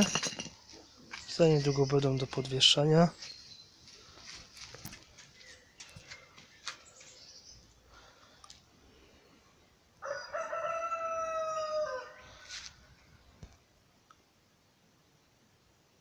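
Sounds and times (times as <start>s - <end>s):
faint clicks and rustles: 3.9s - 7.2s
rooster crowing: 10.0s - 12.5s.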